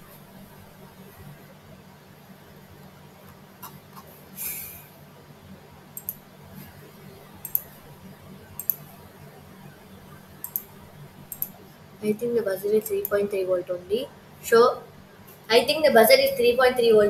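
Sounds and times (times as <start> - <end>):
low steady hum: 0.0 - 17.0
short breathy hiss: 4.3 - 5.0
computer mouse clicks: 6.0 - 6.2, 7.4 - 7.8, 8.6 - 8.9, 10.4 - 11.6, 12.8 - 13.2.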